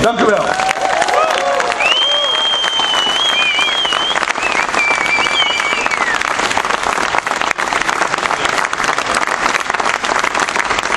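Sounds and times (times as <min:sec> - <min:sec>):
crowd applauding: 0:00.1 - 0:10.9
high wavering whistle: 0:01.8 - 0:06.2.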